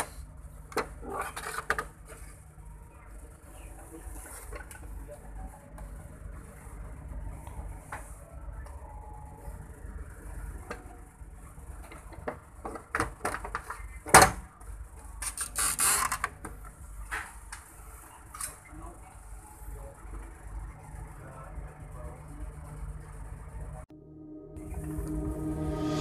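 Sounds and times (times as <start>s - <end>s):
steady low hum: 19.1s - 26.0s.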